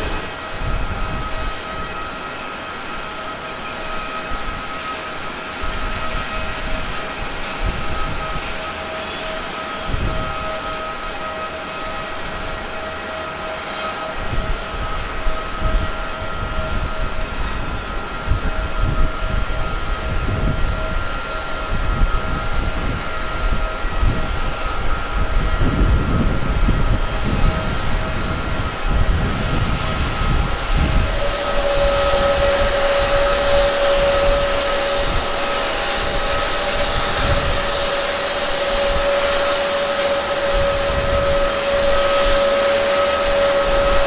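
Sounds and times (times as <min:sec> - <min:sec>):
jet engine whine: 0:00.0 - 0:44.0.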